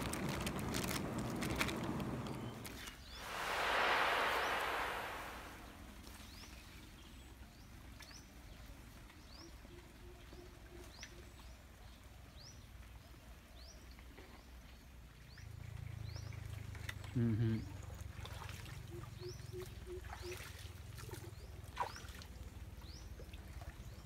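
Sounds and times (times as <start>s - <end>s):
low rumbling noise: 0.0s - 6.0s.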